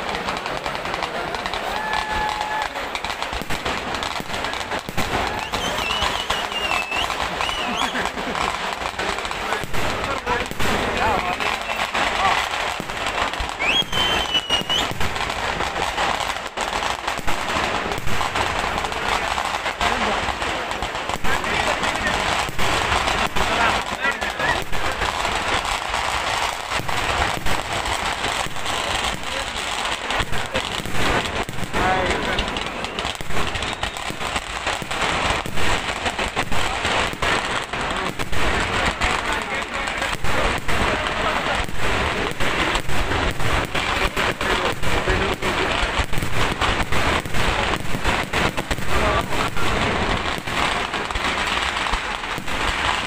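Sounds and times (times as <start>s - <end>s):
firecracker bangs: 0.0s - 53.0s
high steady whistle: 5.4s - 7.9s, 13.6s - 14.9s.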